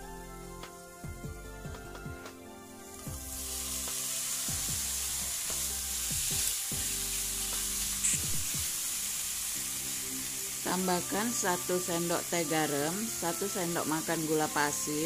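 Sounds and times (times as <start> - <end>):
chicken sizzling in a wok: 2.9 - 15.0.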